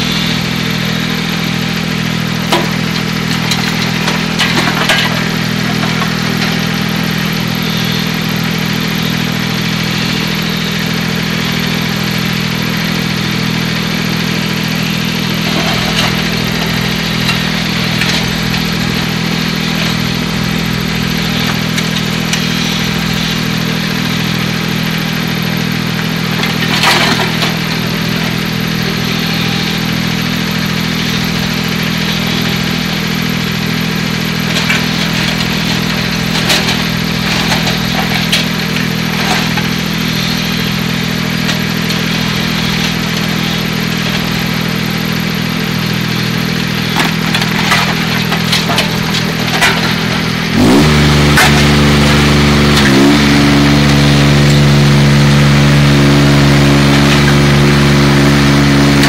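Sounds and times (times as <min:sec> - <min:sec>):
excavator diesel engine running: 0:00.0 - 0:59.0
bucket knocking and scraping stones: 0:34.5 - 0:40.4, 0:47.0 - 0:54.8.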